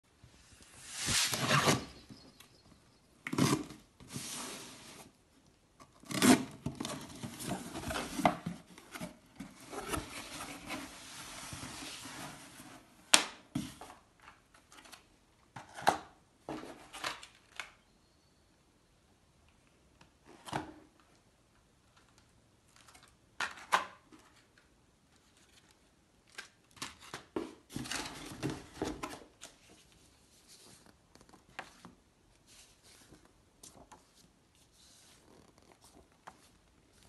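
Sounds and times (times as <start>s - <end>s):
cardboard and paper rustling: 6.2s - 12.9s, 22.0s - 37.0s.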